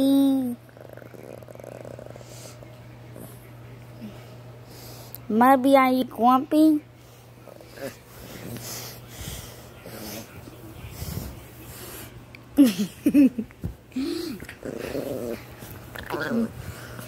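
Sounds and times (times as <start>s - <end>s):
pet grumbling and breathing: 0.1s - 5.2s, 6.8s - 12.2s, 13.9s - 17.0s.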